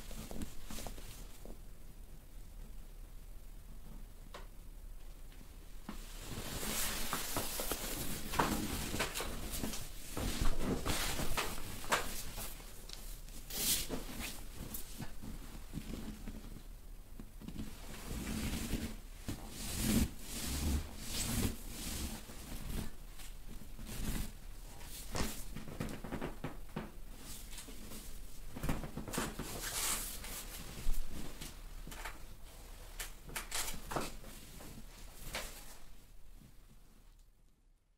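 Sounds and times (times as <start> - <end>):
hands rubbing on skin and clothing: 5.9 - 16.0.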